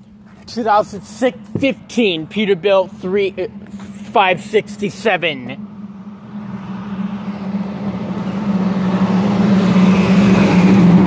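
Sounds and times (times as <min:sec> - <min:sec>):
diesel truck engine approaching: 0:00.0 - 0:11.0.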